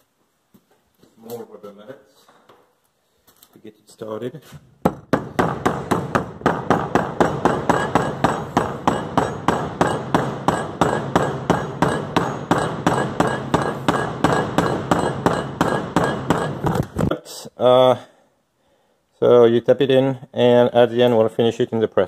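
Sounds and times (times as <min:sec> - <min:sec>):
rubber mallet tapping metal: 0:04.9 - 0:16.8.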